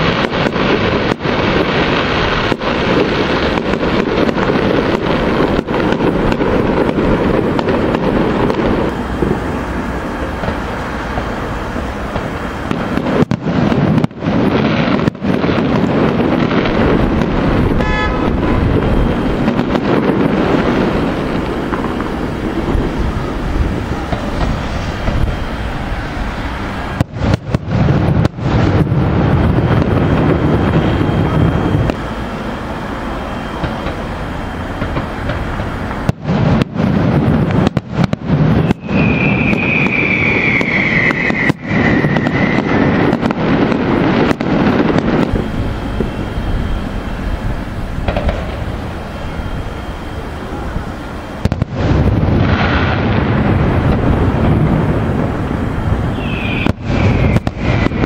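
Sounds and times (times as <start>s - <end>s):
fireworks booming and banging: 0.0s - 58.0s
firework whistle sliding down: 15.8s - 58.0s.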